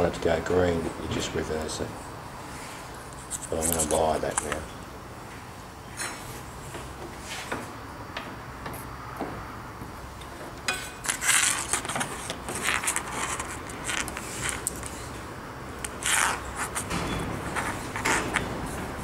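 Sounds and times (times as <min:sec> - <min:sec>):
rustling and scraping of wires: 0:02.4 - 0:04.7, 0:10.7 - 0:19.0.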